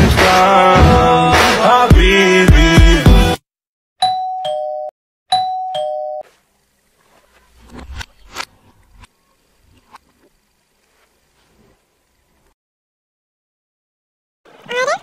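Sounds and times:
two-tone doorbell chime: 4.0 - 6.2.

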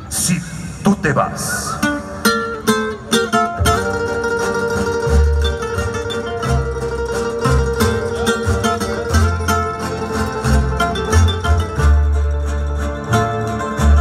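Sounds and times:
acoustic guitars playing chords: 0.0 - 14.0
double bass plucking: 1.4 - 14.0.

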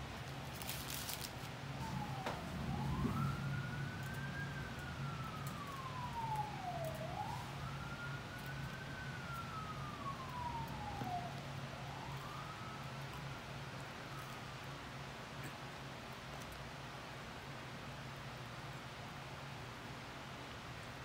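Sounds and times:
steady low hum: 0.0 - 21.0
emergency vehicle siren wailing: 1.5 - 15.1.

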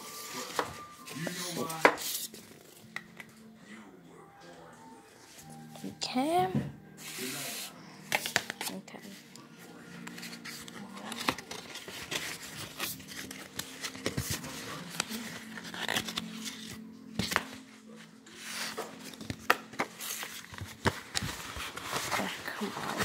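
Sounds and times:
cardboard box and paper rustling: 0.0 - 2.8, 10.0 - 23.0
background music: 0.0 - 23.0.

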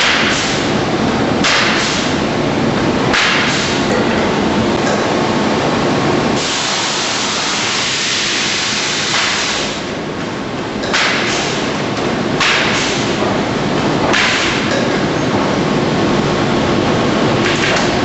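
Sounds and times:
compressed air hissing: 6.4 - 9.8.

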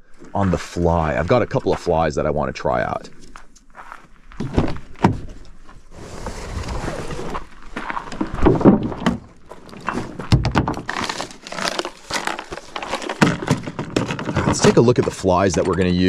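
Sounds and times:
rustling: 2.9 - 16.0
fishing gear knocks and thumps: 8.2 - 16.0.

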